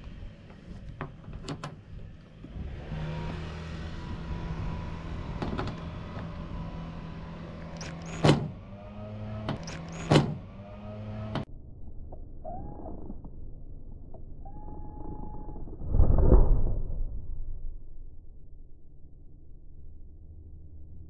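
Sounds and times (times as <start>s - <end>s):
cordless driver motor whir: 2.0s - 11.5s.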